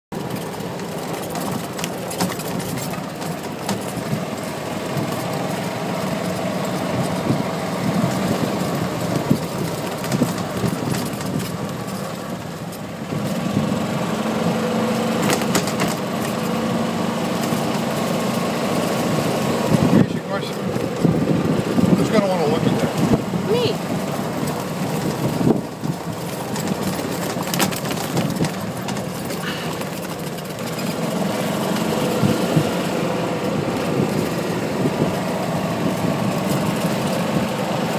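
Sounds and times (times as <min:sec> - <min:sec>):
golf cart motor humming: 0:00.1 - 0:37.9
rattles and knocks from bumps: 0:00.2 - 0:13.6, 0:15.0 - 0:16.7, 0:23.9 - 0:37.6.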